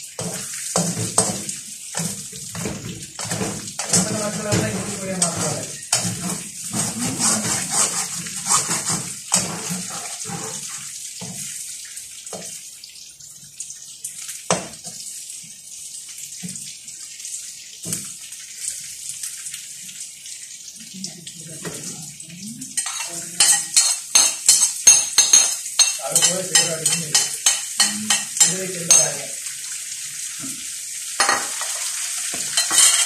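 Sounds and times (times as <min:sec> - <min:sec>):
frying hiss: 0:00.0 - 0:13.2, 0:13.9 - 0:33.0
metal spatula scraping a wok: 0:05.2 - 0:10.7.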